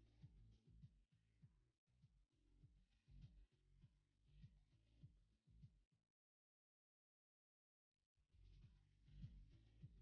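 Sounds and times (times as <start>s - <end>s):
faint low rumble: 8.2s - 10.0s.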